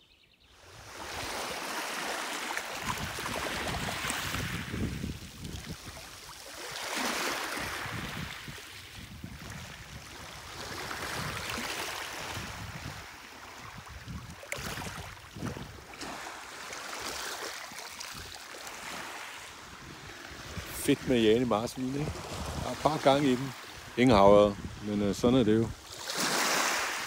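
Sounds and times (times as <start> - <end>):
sea water lapping: 0.6 - 27.0.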